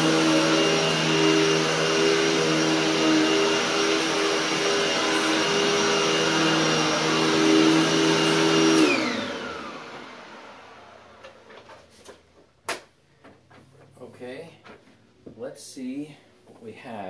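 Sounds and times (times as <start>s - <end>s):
motor winding down whine: 0.0s - 11.3s
vacuum cleaner running: 0.0s - 11.7s.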